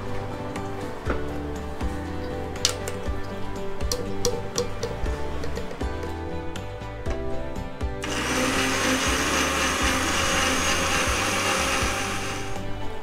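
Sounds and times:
electric blender running: 8.0s - 12.7s.

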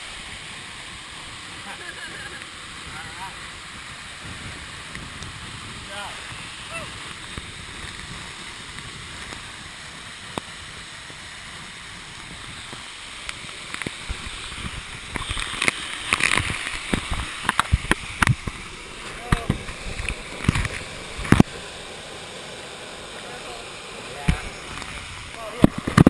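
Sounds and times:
waterfall rushing: 0.0s - 26.0s
sharp knocks and splashes: 12.2s - 21.6s, 24.2s - 26.0s.

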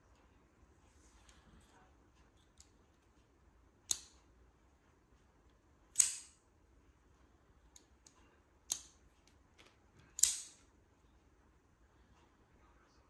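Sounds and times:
lock mechanism ticks: 3.8s - 4.3s, 5.9s - 6.4s, 7.7s - 9.4s, 10.1s - 10.6s.

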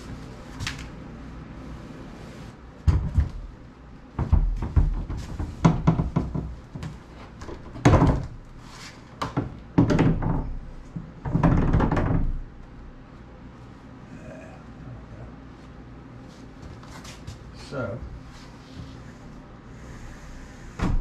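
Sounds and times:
wooden door knocks and thuds: 2.8s - 3.5s, 4.1s - 8.4s, 9.2s - 12.6s, 20.8s - 21.0s.

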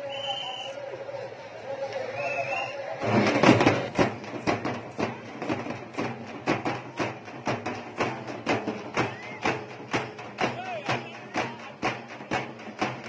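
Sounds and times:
processional drums beating: 2.6s - 13.0s.

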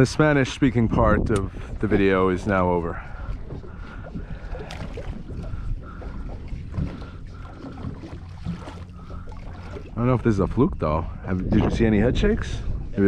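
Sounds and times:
steady low rumble: 0.0s - 13.0s
water against boat hull: 0.0s - 13.0s
wind on microphone: 0.0s - 13.0s.

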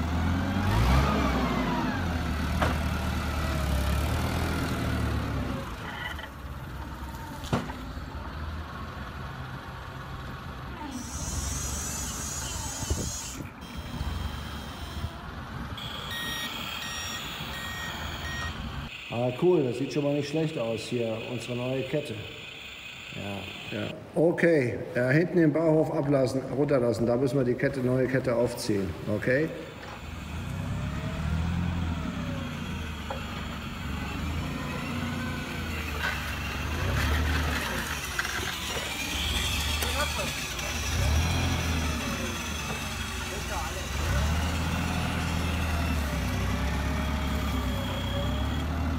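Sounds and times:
model forklift humming: 0.0s - 24.1s, 28.7s - 48.9s
reversing beeps: 13.6s - 15.2s, 15.8s - 24.0s, 46.8s - 48.9s.

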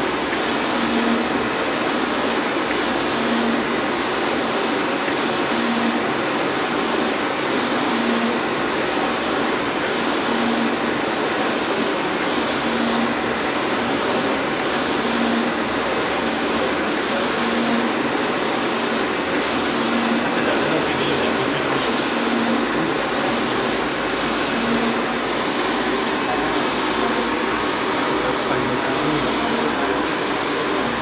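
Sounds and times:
printer machine hiss: 0.0s - 31.0s.

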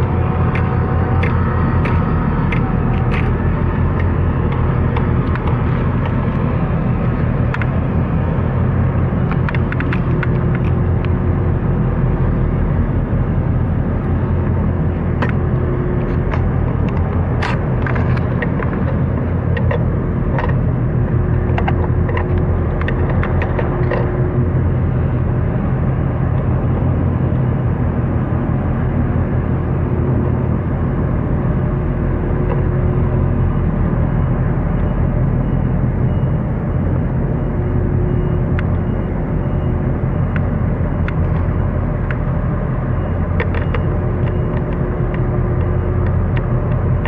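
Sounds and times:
boat diesel engine running: 0.0s - 47.0s
small clicks: 43.4s - 47.0s.

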